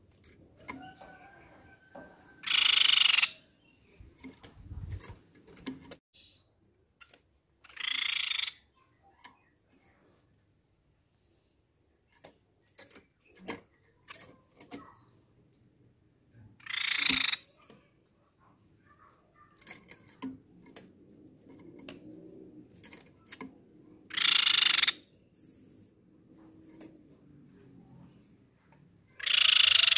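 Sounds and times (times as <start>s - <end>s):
bird harsh trilled calls: 2.4s - 4.0s, 7.6s - 9.2s, 16.6s - 17.6s, 24.1s - 26.0s, 29.1s - 29.9s.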